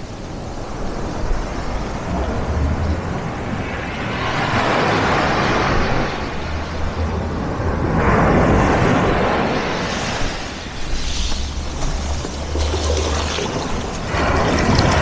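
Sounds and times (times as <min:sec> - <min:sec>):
surf on a pebble beach: 0:00.0 - 0:15.0
waves breaking: 0:00.0 - 0:15.0.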